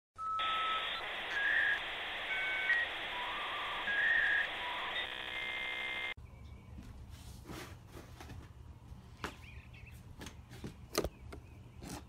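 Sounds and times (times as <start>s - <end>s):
electronic beeps: 0.2s - 6.2s.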